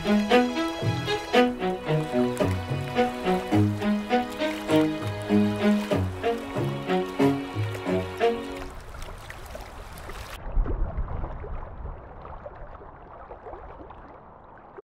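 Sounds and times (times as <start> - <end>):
muffled underwater rumble: 10.3 - 14.8.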